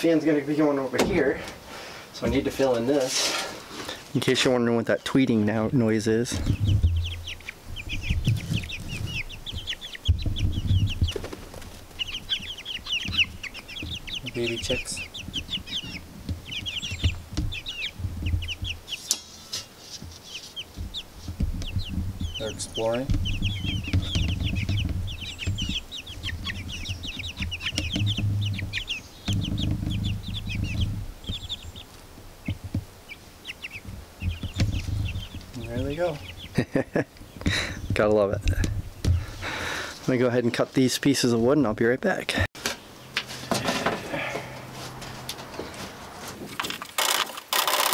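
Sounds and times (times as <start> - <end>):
baby chicks peeping: 0.0 - 47.9
low rumbles: 0.8 - 3.0, 4.0 - 19.0, 20.6 - 39.9
low rumble: 21.6 - 31.7.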